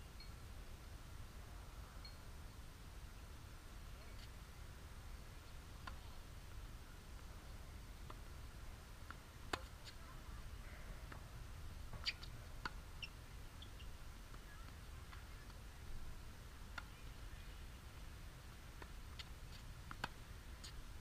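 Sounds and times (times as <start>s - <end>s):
tennis ball bouncing on hard court: 9.5s - 10.0s, 11.9s - 13.1s, 18.8s - 20.8s
tennis ball struck by rackets: 9.5s - 10.0s, 18.8s - 20.8s.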